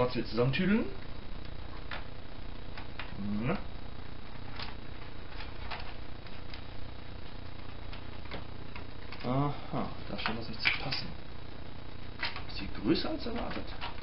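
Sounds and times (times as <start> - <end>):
person grunting: 3.2 - 3.6.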